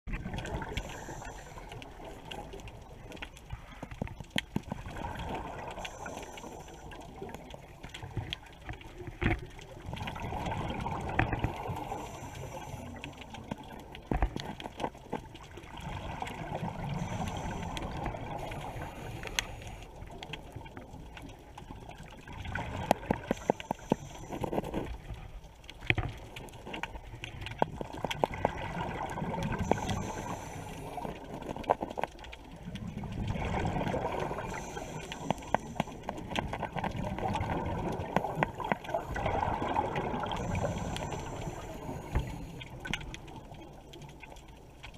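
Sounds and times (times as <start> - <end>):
regulator breathing hiss and bubbles: 0.1 - 4.0, 4.7 - 43.7
sharp clicks and crackles: 0.1 - 44.9.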